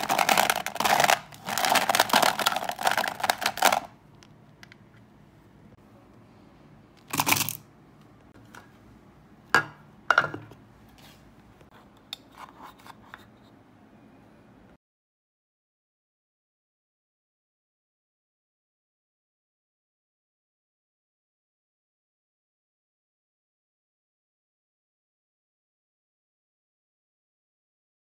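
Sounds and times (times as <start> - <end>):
wax pieces clattering in plastic drawer: 0.0 - 3.9
wax pieces clinking into metal pot: 0.0 - 3.9.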